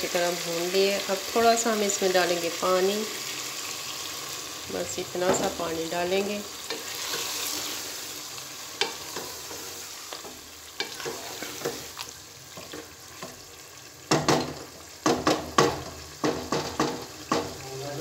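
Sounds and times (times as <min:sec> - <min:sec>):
masala sizzling: 0:00.0 - 0:18.0
wooden spoon stirring curry: 0:06.5 - 0:13.8
spoon knocking against pot: 0:14.1 - 0:17.6.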